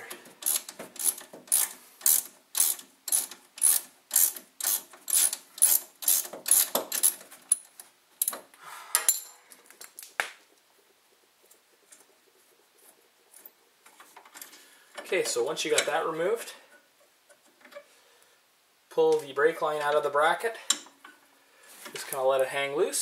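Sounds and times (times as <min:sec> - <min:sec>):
ratchet clicking: 0:00.4 - 0:07.6.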